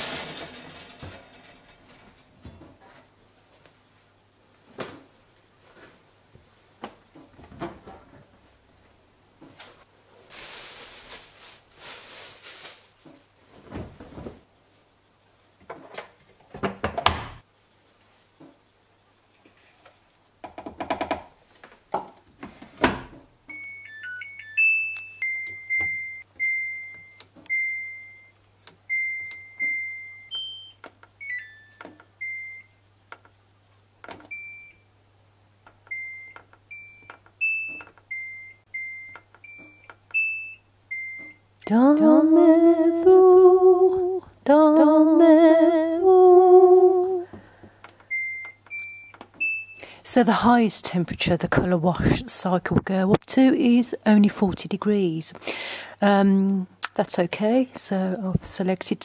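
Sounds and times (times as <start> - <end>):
washing machine humming: 0.0 - 3.4
control panel beeps: 23.5 - 32.7.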